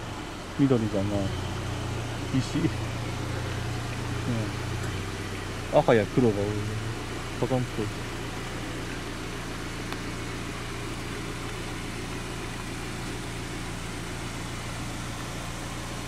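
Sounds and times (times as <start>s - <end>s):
car engine humming: 0.0s - 16.0s.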